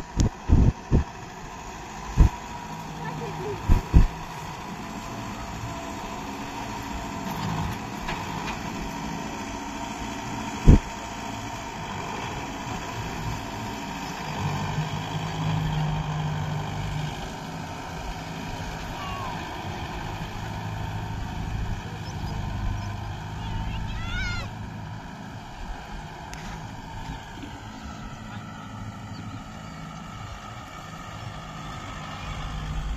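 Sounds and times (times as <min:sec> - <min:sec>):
tractor diesel engine running: 0:00.0 - 0:32.9
sharp low thump: 0:02.2 - 0:02.4, 0:03.6 - 0:04.1, 0:10.7 - 0:10.9.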